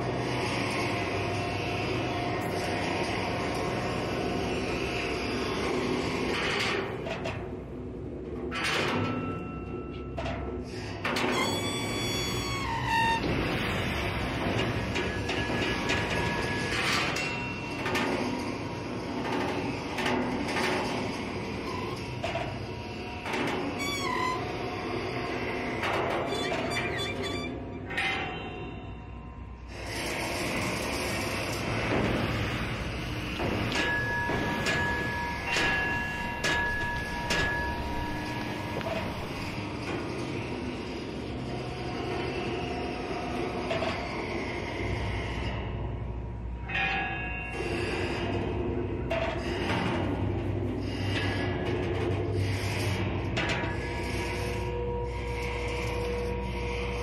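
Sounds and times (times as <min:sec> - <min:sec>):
high squealing tone: 0:26.3 - 0:27.6
metal scraping and grinding: 0:29.7 - 0:45.8.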